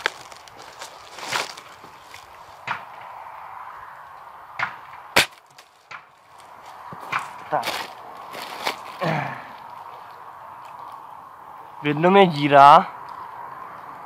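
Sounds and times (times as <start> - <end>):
rustling: 0.0 - 2.6, 5.2 - 9.0.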